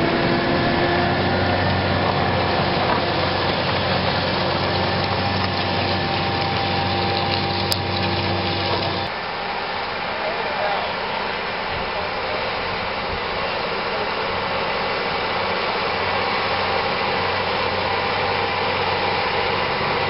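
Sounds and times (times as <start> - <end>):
tractor diesel engine running: 0.0 - 9.1, 12.7 - 20.0.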